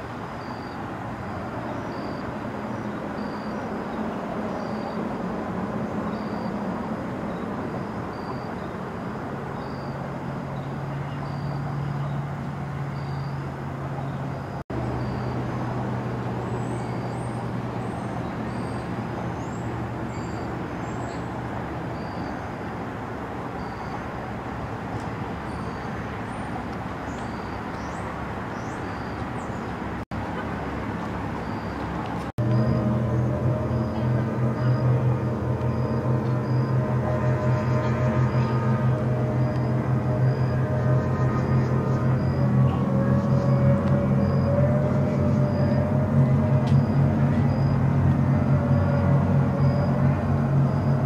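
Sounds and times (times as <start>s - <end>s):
traffic noise: 0.0s - 51.0s
faint high chirp: 0.4s - 5.1s, 6.1s - 6.7s, 7.3s - 8.7s, 9.6s - 12.2s, 12.9s - 13.4s, 14.0s - 15.4s, 22.0s - 22.5s, 23.6s - 24.1s, 27.1s - 28.0s, 28.6s - 29.6s, 31.4s - 48.0s
low motor hum: 31.2s - 51.0s.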